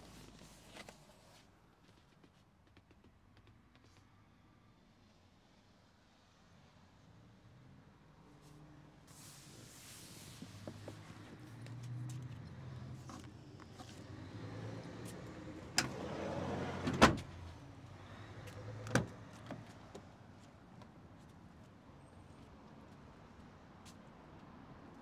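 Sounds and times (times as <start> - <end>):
sliding door shutting thud: 15.8 - 17.3.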